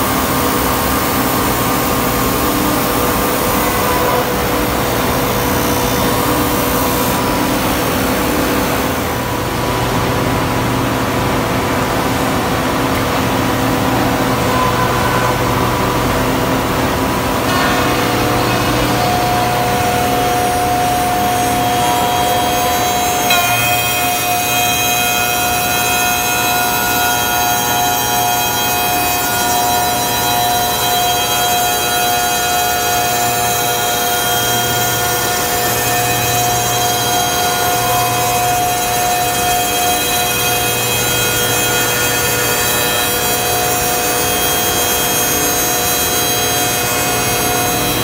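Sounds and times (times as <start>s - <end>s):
shaping machine whine: 0.0s - 48.0s
wood cutting noise: 17.5s - 48.0s.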